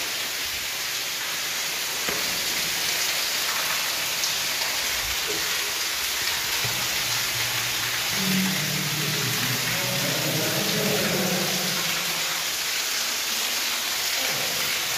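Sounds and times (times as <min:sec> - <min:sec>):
water falling and splashing in tunnel: 0:00.0 - 0:14.9.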